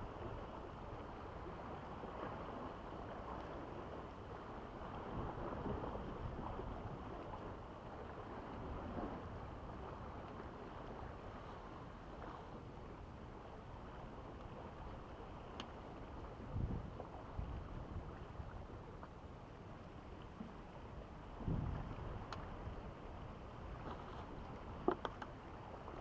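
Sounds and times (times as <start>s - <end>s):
small waves on rocky shore: 0.0s - 26.0s
wind on microphone: 4.8s - 12.8s, 16.0s - 19.0s, 21.1s - 26.0s.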